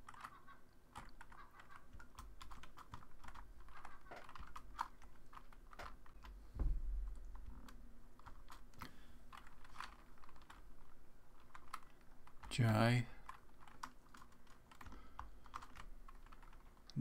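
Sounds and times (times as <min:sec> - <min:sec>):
low thump: 0:06.6 - 0:07.2.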